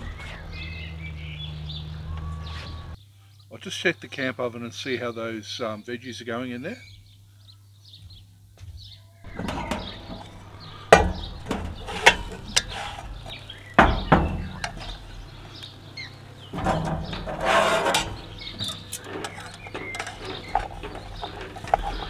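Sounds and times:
spoon and tongs scraping pot: 9.3s - 15.0s, 16.5s - 22.0s
metal lid clanking: 9.3s - 15.2s, 16.4s - 22.0s.

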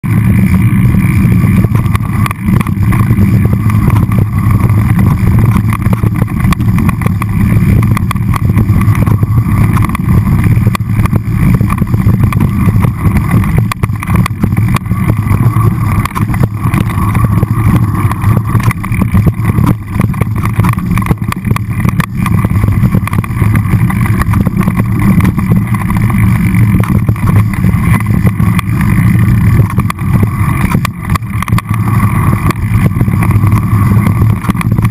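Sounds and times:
wind and trail vibration rumble: 0.0s - 34.9s.

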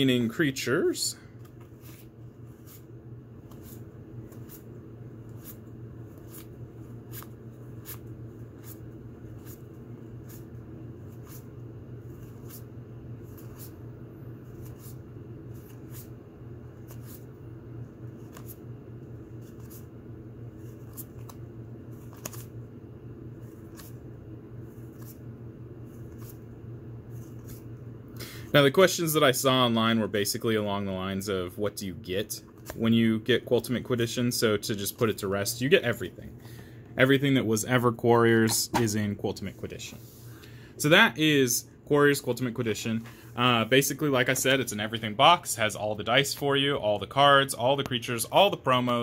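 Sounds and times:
steady low hum: 0.0s - 49.0s
cards flipping with soft snaps: 18.2s - 18.6s, 20.6s - 22.6s, 23.5s - 24.0s, 24.8s - 25.2s.

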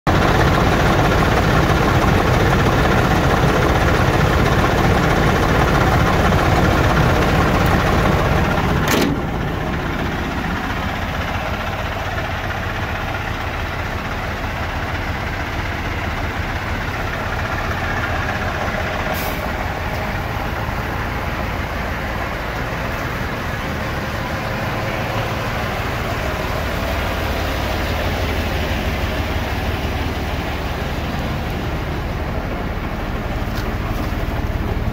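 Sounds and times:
diesel truck engine idling: 0.1s - 34.9s.

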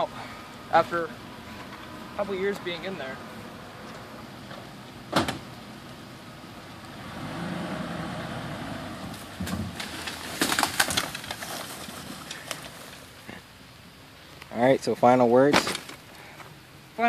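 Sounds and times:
truck engine under load: 3.4s - 13.4s
metal cart clattering and scraping: 9.4s - 13.0s.

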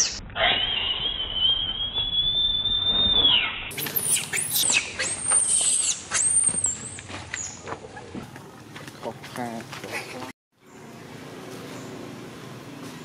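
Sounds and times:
baby monkey screaming and squealing: 0.4s - 7.6s.

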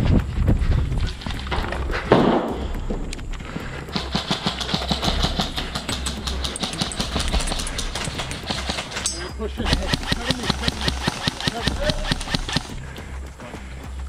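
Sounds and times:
wind rumble on microphone: 0.0s - 3.9s
kit rattling: 0.5s - 14.0s.

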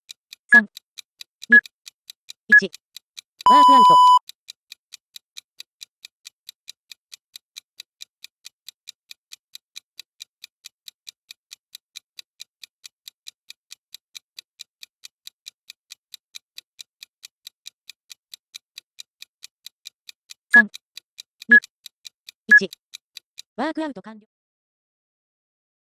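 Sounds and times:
timer app ticking: 0.5s - 0.8s, 1.4s - 2.8s, 3.4s - 4.4s, 11.1s - 23.5s.

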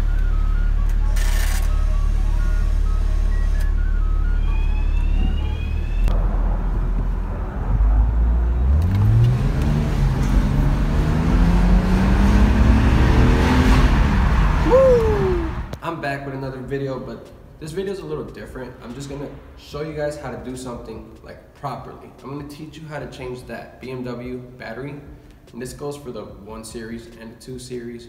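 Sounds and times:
car engine revving: 0.0s - 15.8s
falling tone: 0.0s - 15.8s.

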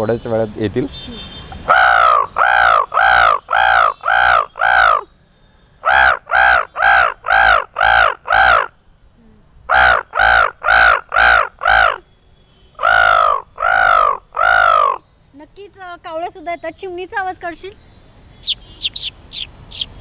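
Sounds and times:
man imitating crow caws: 1.1s - 5.1s, 5.8s - 8.7s, 9.7s - 12.0s, 12.8s - 15.0s.

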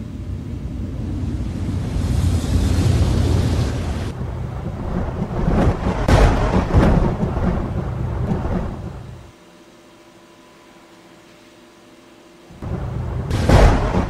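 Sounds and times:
thunder rumbling and clapping: 3.7s - 9.2s, 12.6s - 14.0s.

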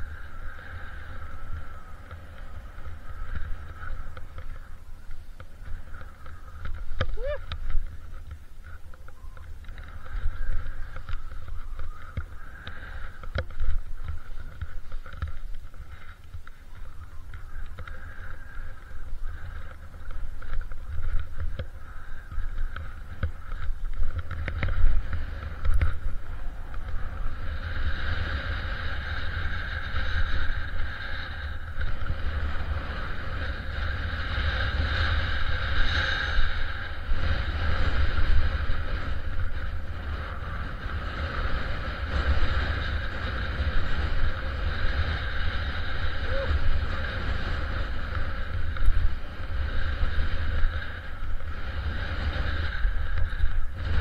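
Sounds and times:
skis scraping over snow: 0.0s - 54.0s
wind buffeting microphone: 0.0s - 54.0s
small clicks and knocks: 3.3s - 27.0s.

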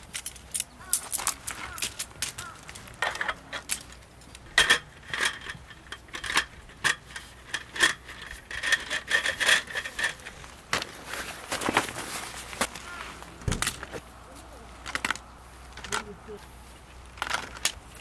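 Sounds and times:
small metal objects clinking: 0.0s - 10.4s.

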